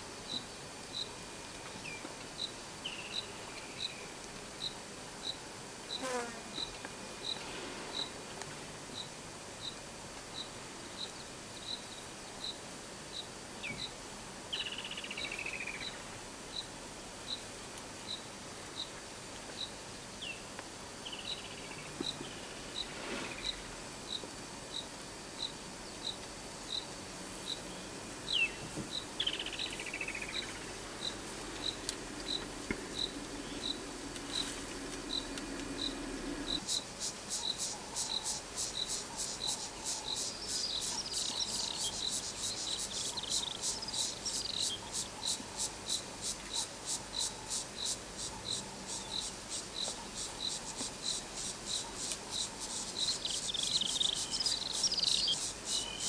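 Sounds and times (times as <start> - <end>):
insects chirping: 19.6 - 56.0
insect buzzy pulsing: 21.3 - 56.0.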